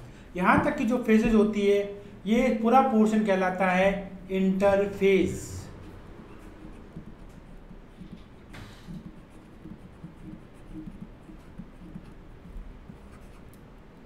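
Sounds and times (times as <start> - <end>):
stylus scratching on pen tablet: 6.2 - 14.0.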